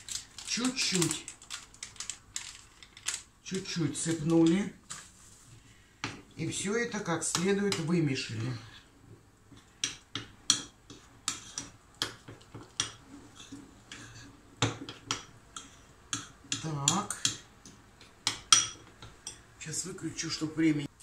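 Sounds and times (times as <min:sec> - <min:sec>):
utensil stirring batter in bowl: 0:07.2 - 0:19.5.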